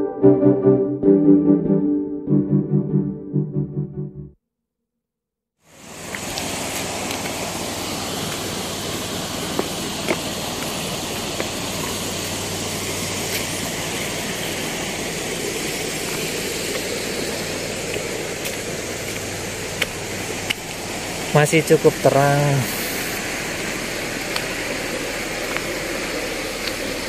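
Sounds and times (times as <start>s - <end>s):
river water rushing: 5.7s - 27.0s.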